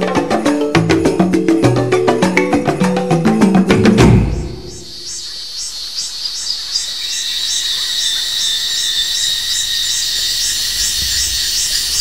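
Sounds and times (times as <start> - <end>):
insects pulsed call: 0.0 - 12.0
high-pitched insect drone: 4.3 - 12.0.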